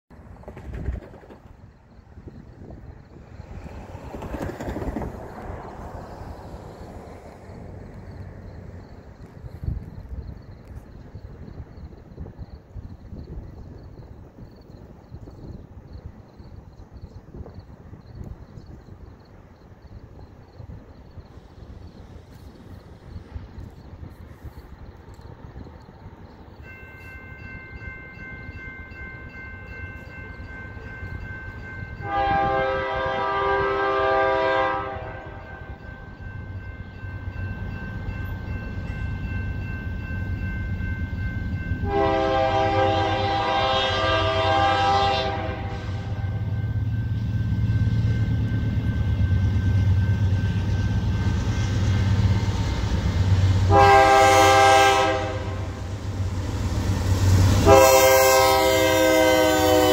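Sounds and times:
diesel locomotive engines rumbling: 0.1 - 59.9
train air horn blasts: 32.0 - 35.8, 41.8 - 46.6, 53.6 - 55.9, 57.5 - 59.9.

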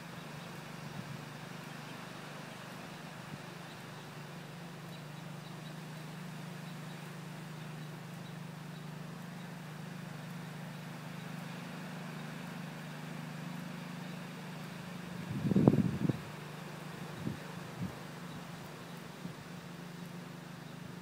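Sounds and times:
faint outdoor background noise: 0.0 - 21.0
steady low motor hum: 0.0 - 21.0
loud rumble on microphone: 15.2 - 16.4.

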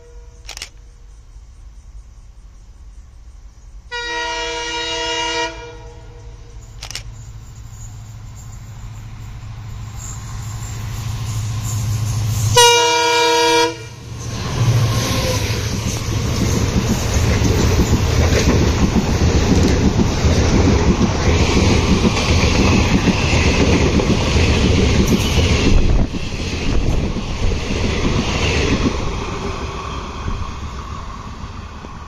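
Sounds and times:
locomotive horn blasts: 3.9 - 6.2, 12.5 - 14.1
coaches rattling over rail joints: 14.1 - 32.0.

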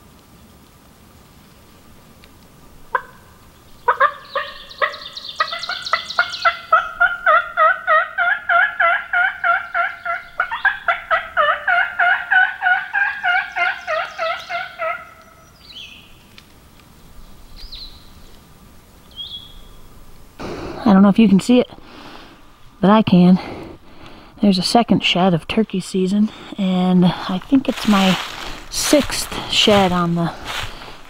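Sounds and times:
faint songbird chirps: 2.9 - 7.1, 13.2 - 16.3, 17.0 - 18.4, 19.0 - 19.9
turkey call clucks and yelps: 2.9 - 15.5.

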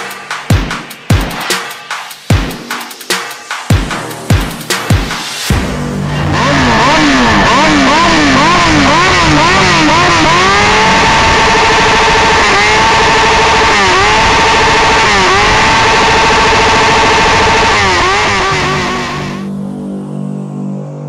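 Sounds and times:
motorcycle engine revving: 3.8 - 19.6.

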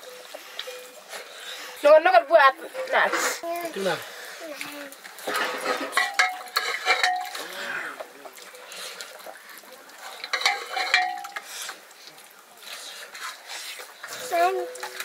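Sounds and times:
metal spoon scraping cooking pot: 5.2 - 7.4, 10.2 - 11.8.

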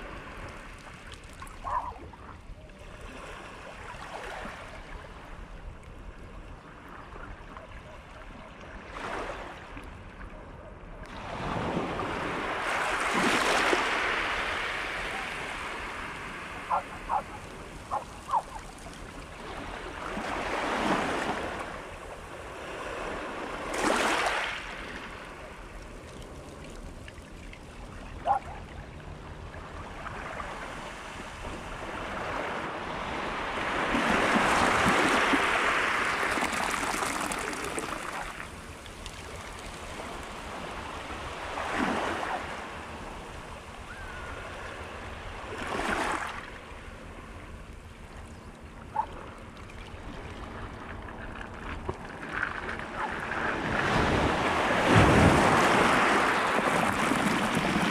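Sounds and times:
sea waves on rocky shore: 11.2 - 47.4, 48.8 - 57.9.

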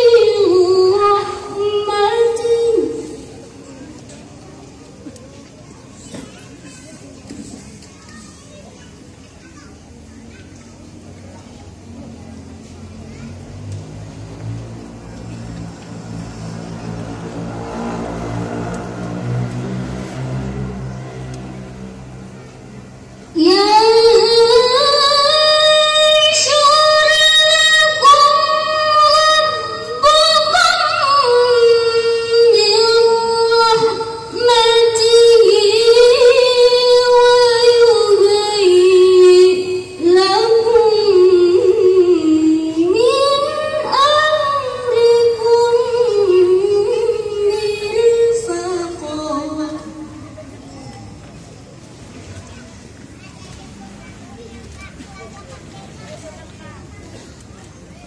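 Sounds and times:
girl reciting over loudspeakers: 0.0 - 3.7, 23.2 - 51.1.

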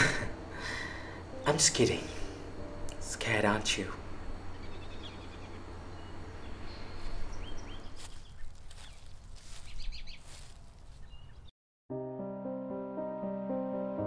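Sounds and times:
low background hum: 0.0 - 9.6
small birds chirping: 0.6 - 11.5.

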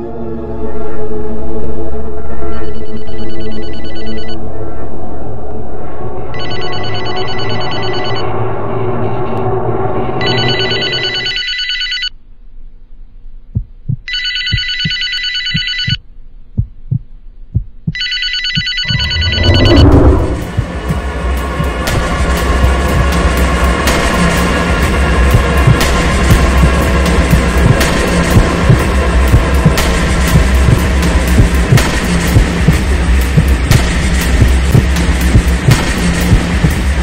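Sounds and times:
low sustained film music: 0.0 - 11.4
telephone ringing: 2.6 - 4.4, 6.4 - 8.2, 10.2 - 12.1, 14.1 - 16.0, 18.0 - 19.6.

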